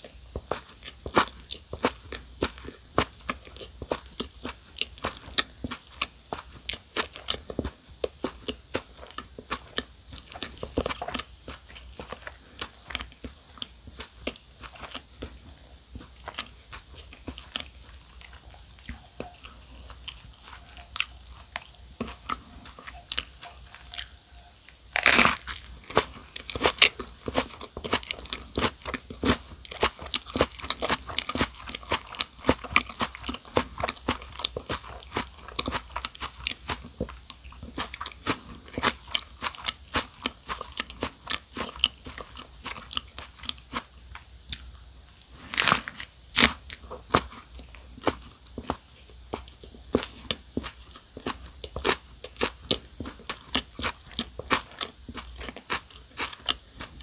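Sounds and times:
crunchy chewing: 0.0s - 57.0s
loud crunching bite: 18.8s - 22.5s, 23.1s - 24.2s, 24.8s - 36.1s, 45.4s - 47.3s.

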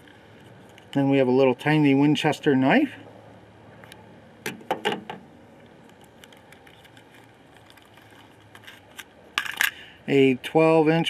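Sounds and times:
small metal items clicking: 5.9s - 9.8s.

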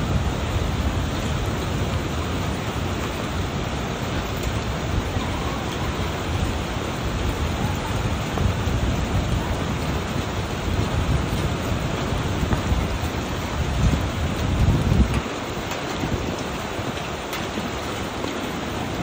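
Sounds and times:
heavy rain and hail on street: 0.0s - 19.0s.

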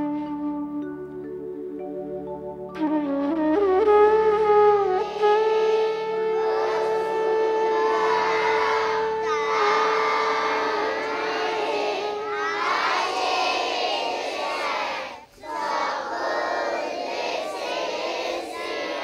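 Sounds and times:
horn-like tone: 2.7s - 14.2s
children singing together: 4.8s - 19.0s.

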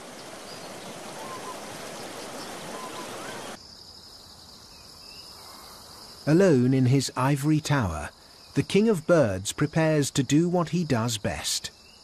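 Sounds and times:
soft rushing hiss: 0.0s - 7.1s.

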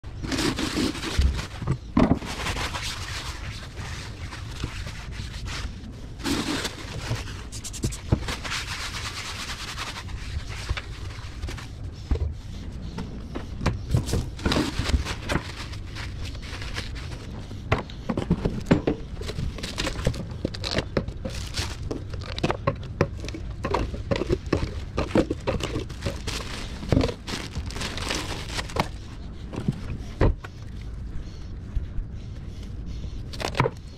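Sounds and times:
crinkle of paper and plastic: 0.0s - 11.8s, 13.8s - 30.0s, 33.3s - 33.8s
low room hum: 0.0s - 33.9s
scraping: 18.2s - 29.8s.

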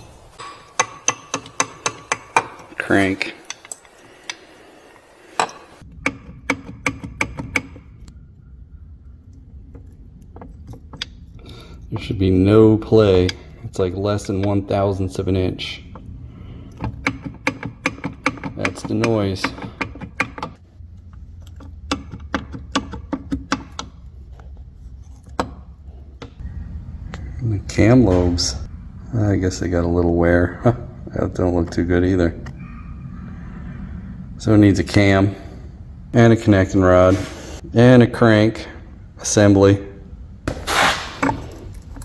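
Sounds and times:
connecting rod clacking: 16.7s - 20.6s, 21.4s - 24.0s.

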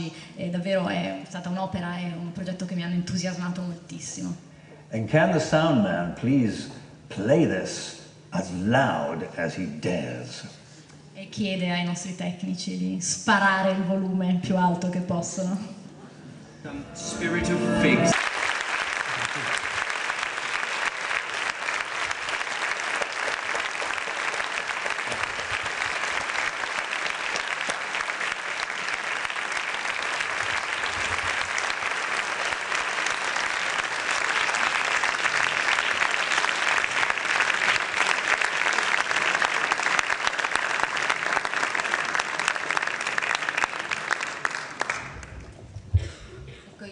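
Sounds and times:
audience applauding: 17.0s - 45.5s.

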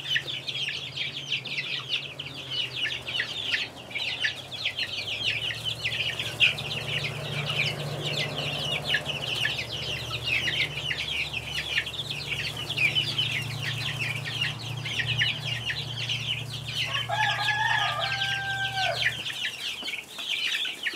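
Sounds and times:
chicks peeping: 0.0s - 20.9s
rooster crowing: 16.2s - 19.3s.

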